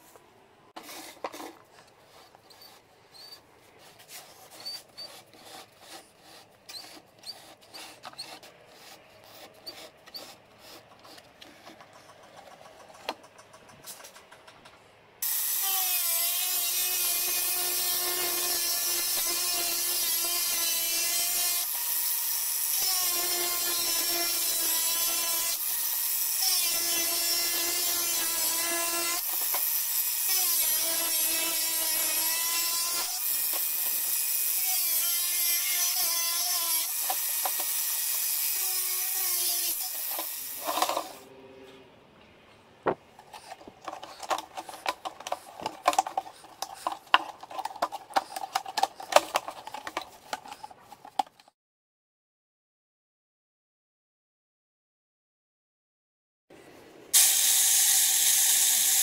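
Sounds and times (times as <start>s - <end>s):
angle grinder cutting plastic: 0.8s - 13.2s, 15.2s - 41.2s, 43.2s - 51.5s, 57.2s - 59.0s
plastic basin clicks and scratches: 42.9s - 51.5s.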